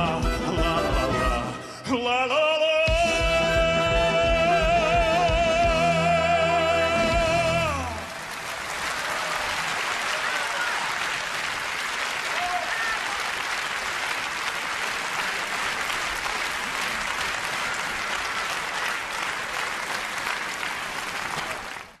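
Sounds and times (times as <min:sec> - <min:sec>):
audience applauding: 0:06.4 - 0:22.0.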